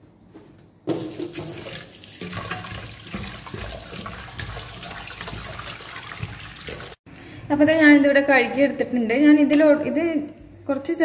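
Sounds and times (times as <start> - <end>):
tap running into steel pot: 0.9 - 6.4.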